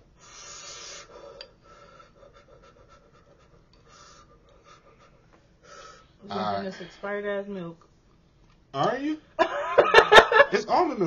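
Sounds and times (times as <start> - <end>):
person breathing out hard: 0.2 - 2.4, 5.6 - 6.2.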